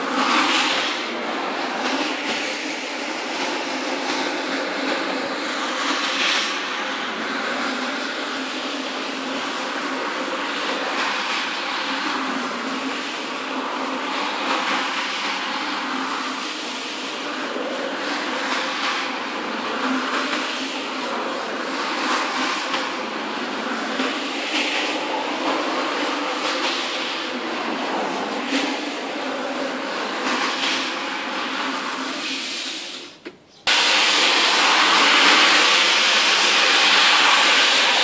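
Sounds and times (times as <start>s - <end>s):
carpet scrubbing machine running: 0.0s - 38.0s.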